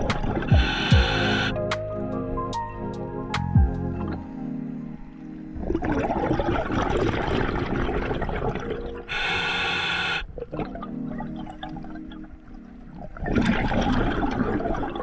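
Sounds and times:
exhaled bubbles rushing underwater: 0.0 - 1.6, 5.4 - 9.5, 10.2 - 15.0
regulator valve hissing: 0.4 - 1.6, 9.1 - 10.2.

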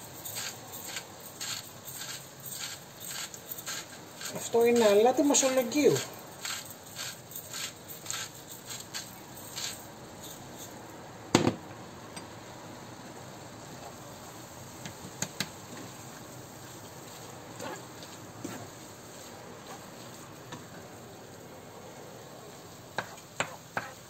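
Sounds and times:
meat sizzling: 0.0 - 10.7, 13.6 - 21.4
salt grinder grinding: 0.0 - 10.8.

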